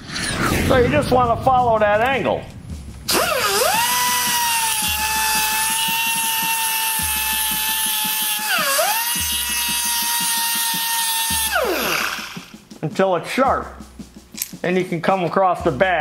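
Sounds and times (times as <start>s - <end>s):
grinder whine: 3.1s - 12.5s
grinding hiss: 3.1s - 12.6s.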